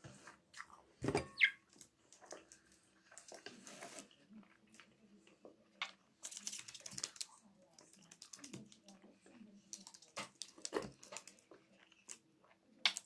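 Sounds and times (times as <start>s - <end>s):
budgerigar chirp: 1.4s - 1.6s.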